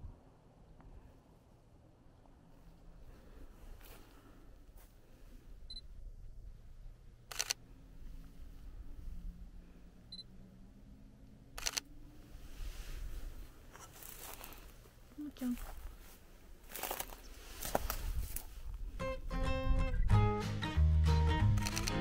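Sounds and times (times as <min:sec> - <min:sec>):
camera focus beep: 0:07.3 - 0:07.6, 0:11.6 - 0:11.8, 0:21.6 - 0:22.0
camera shutter double click: 0:21.6 - 0:22.0.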